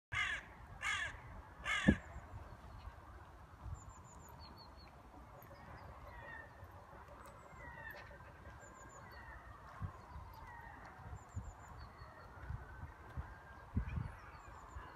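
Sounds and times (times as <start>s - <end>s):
crow cawing: 0.1s - 2.0s.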